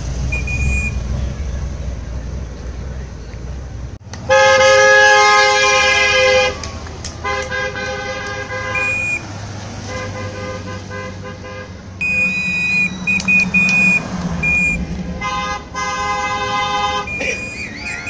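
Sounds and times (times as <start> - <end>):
car horns honking: 0.0 - 2.0, 4.1 - 18.0
engine hum: 0.0 - 18.0.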